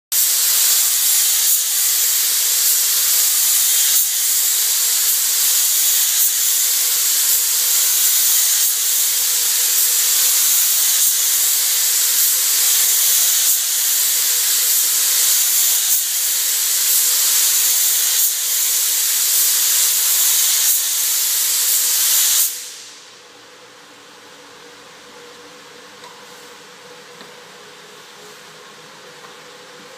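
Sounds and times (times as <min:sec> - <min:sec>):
paint spray gun hissing: 0:00.2 - 0:23.1
faint steady hum: 0:22.7 - 0:29.9.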